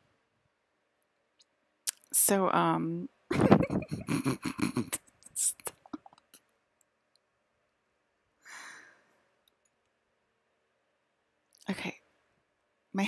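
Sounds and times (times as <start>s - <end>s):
woman laughing quietly: 3.3s - 6.2s
soft sighing breath: 8.4s - 9.2s.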